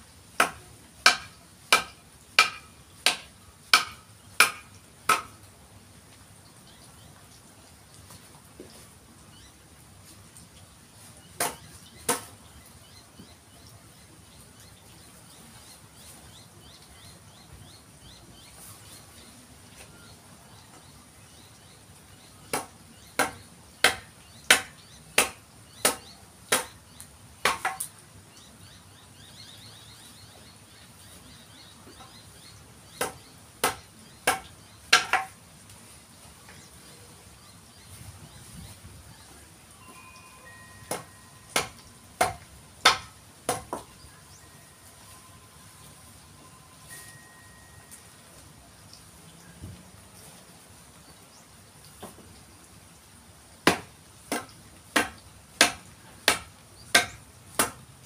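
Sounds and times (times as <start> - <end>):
mallet and chisel knocking wood: 0.4 - 5.3, 22.5 - 26.8, 27.4 - 27.8, 33.0 - 35.4, 40.9 - 43.9, 53.7 - 57.8.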